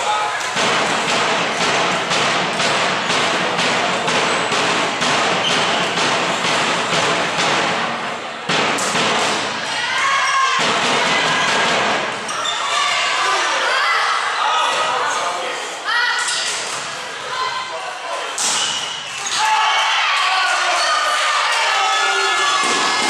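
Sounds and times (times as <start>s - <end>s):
rhythmic clapping in a hall: 0.0s - 9.6s
girls shouting: 9.6s - 11.7s.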